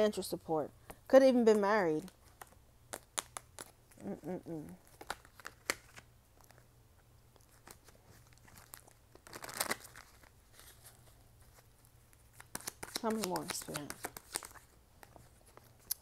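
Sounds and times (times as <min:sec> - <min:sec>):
cards clicking and snapping: 0:02.3 - 0:03.8, 0:12.4 - 0:14.6
person humming: 0:04.0 - 0:04.8
cards rustling: 0:04.8 - 0:06.6, 0:07.4 - 0:16.0.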